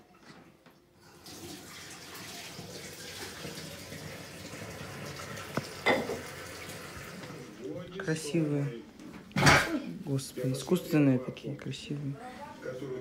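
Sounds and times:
water running from a tap: 0:01.0 - 0:07.5.

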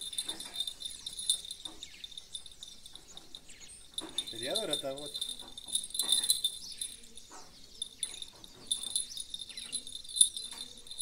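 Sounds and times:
small bell jingling: 0:00.0 - 0:11.0.

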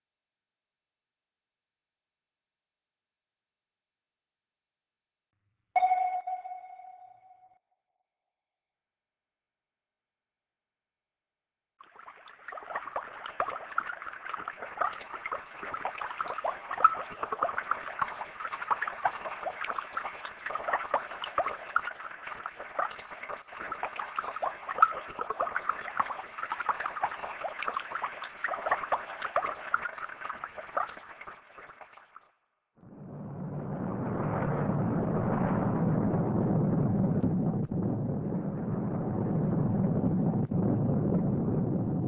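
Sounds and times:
low rumble: 0:32.8 - 0:42.0.

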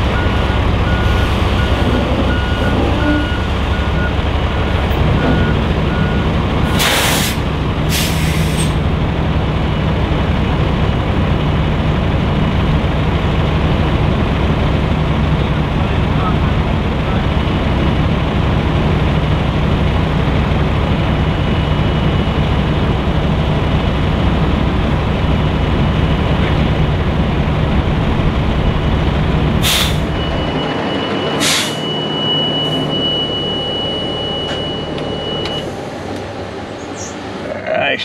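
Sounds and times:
diesel truck engine idling: 0:00.0 - 0:38.0
air hissing: 0:06.7 - 0:08.8, 0:29.6 - 0:30.1
high warning beep: 0:29.8 - 0:35.7.

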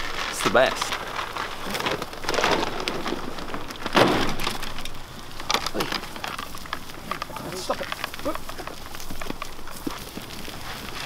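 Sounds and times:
deer rustling and crunching: 0:00.0 - 0:11.0
deer calls: 0:05.6 - 0:10.9.

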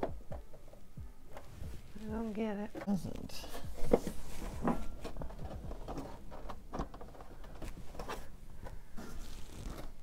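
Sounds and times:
hard plastic parts clicking: 0:05.0 - 0:08.8.

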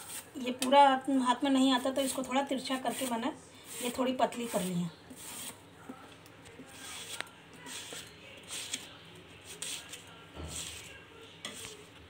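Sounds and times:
banana rasping on grater blade: 0:02.1 - 0:05.6.

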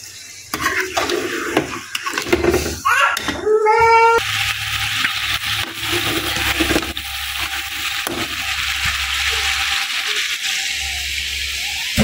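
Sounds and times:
chicken sizzling in hot fat: 0:04.2 - 0:12.0.

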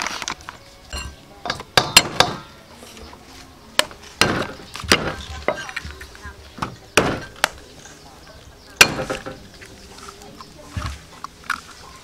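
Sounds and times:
cleaver chopping on wooden board: 0:01.5 - 0:02.5, 0:03.8 - 0:05.6, 0:06.6 - 0:07.6, 0:08.8 - 0:09.4.

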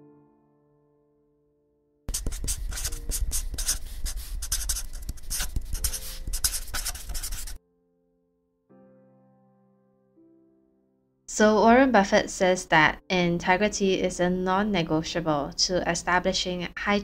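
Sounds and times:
pencil scratching on paper: 0:02.1 - 0:07.6.

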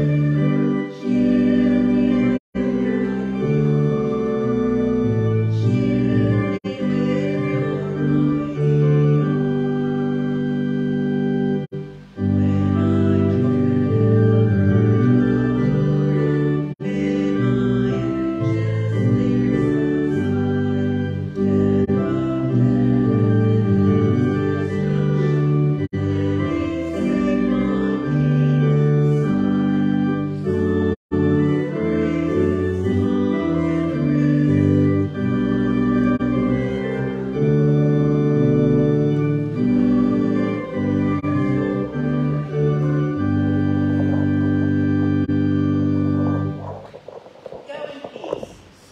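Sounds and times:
church organ playing a hymn: 0:00.0 - 0:47.2
congregation singing faintly: 0:00.0 - 0:48.0.

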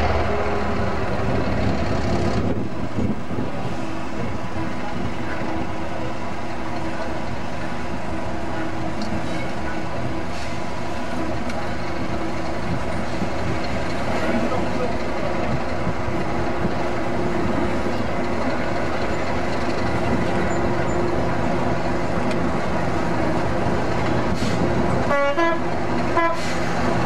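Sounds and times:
diesel locomotive engine running: 0:00.0 - 0:27.0.

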